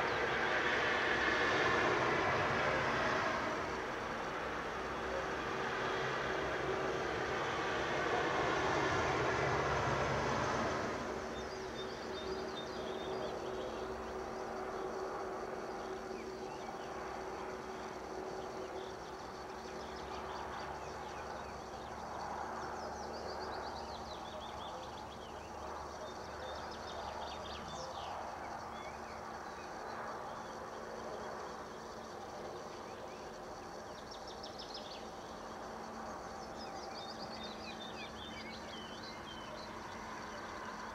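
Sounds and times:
passing vehicle rumble: 0.0s - 16.4s
songbirds singing: 11.2s - 40.9s.

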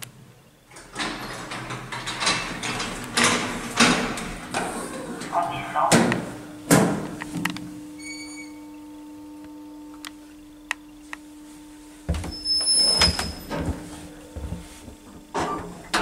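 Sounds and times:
elevator machinery humming: 0.0s - 16.0s
sliding door squealing: 0.8s - 5.4s, 8.0s - 8.7s, 12.2s - 13.7s.

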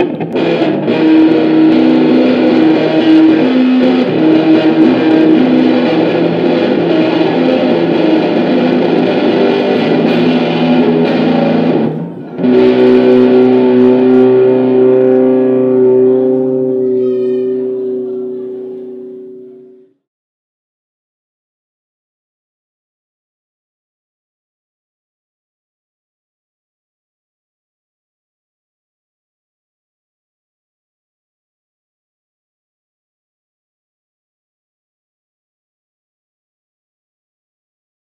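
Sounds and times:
electric guitar with effects: 0.0s - 20.0s.

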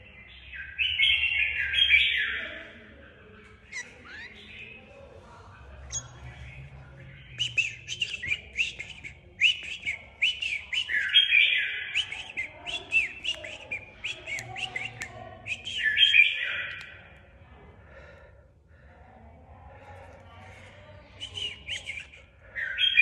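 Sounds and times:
bird chirping: 0.0s - 2.6s, 3.5s - 5.1s, 5.7s - 17.2s, 21.2s - 23.0s
harsh rasping bird calls: 3.6s - 5.2s, 5.8s - 17.2s.

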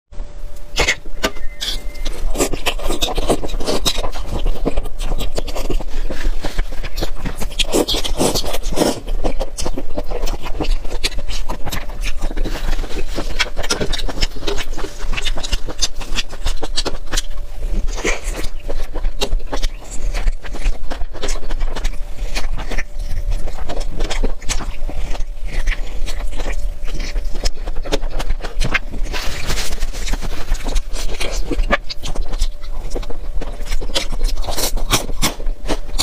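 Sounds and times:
close chewing and mouth sounds: 0.5s - 36.0s.

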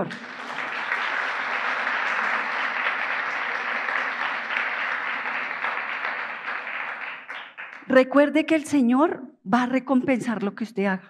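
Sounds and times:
crowd clapping: 0.0s - 8.0s.

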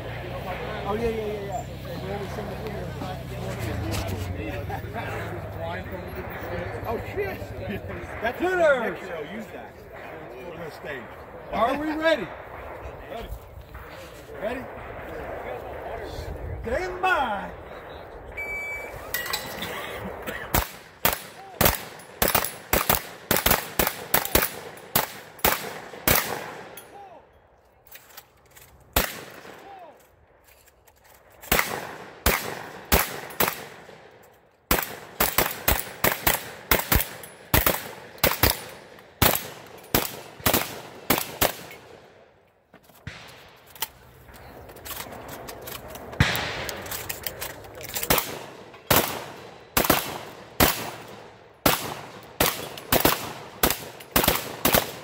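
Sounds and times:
shotguns firing rapidly: 20.1s - 26.8s, 29.0s - 29.8s, 31.5s - 34.1s, 34.7s - 42.1s, 48.0s - 55.0s.

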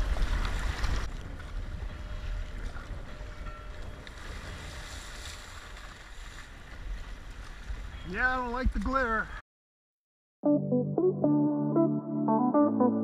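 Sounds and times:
wind buffeting microphone: 0.0s - 8.1s
water rushing along boat hull: 0.0s - 8.6s.

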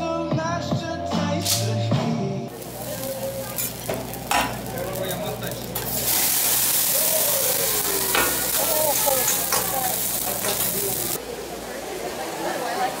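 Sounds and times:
food sizzling on a griddle: 2.5s - 11.2s.

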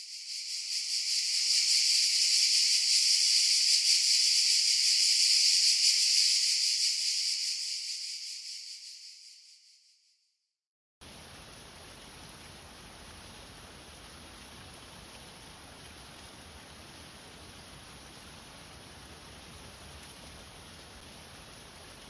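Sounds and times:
high even hiss: 0.0s - 9.6s.

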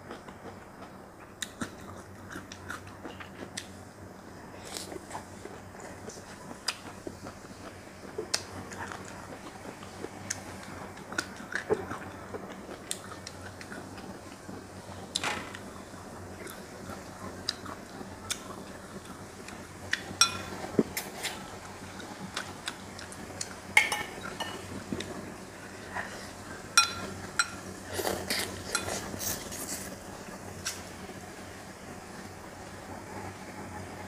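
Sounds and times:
eating sounds: 4.6s - 14.4s, 16.4s - 20.1s.

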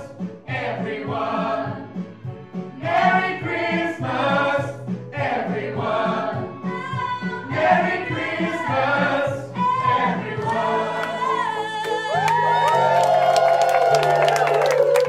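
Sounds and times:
group singing in harmony: 0.0s - 12.2s.

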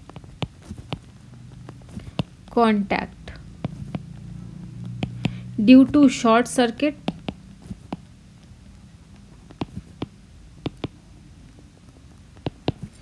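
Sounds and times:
stylus tapping on screen: 0.0s - 2.7s, 3.4s - 6.1s, 6.8s - 8.5s, 9.1s - 11.0s, 12.3s - 13.0s.

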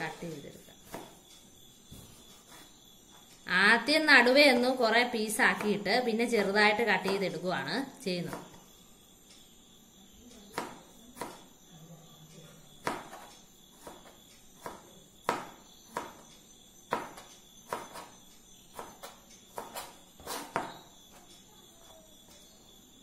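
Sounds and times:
knife chopping on cutting board: 0.8s - 1.2s, 10.5s - 11.5s, 12.8s - 16.2s, 16.9s - 18.1s, 18.7s - 20.9s.

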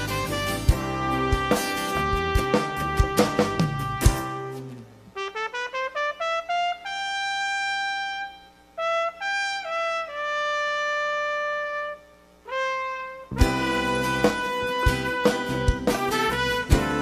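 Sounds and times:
trumpets playing melody: 0.0s - 17.0s.

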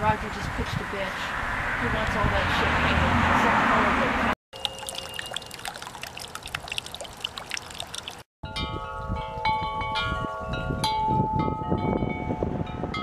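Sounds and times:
fountain trickling and splashing: 4.6s - 8.3s
tubular wind chimes ringing: 4.6s - 13.0s.

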